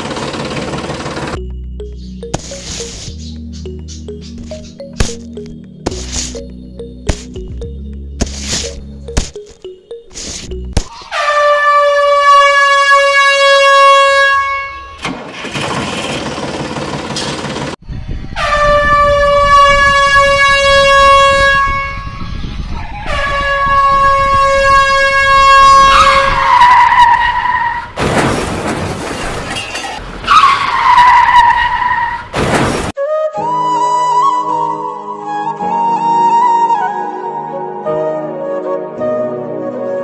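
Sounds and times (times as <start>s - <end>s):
train horn blasts: 11.1s - 15.0s, 18.4s - 22.4s, 23.1s - 27.5s.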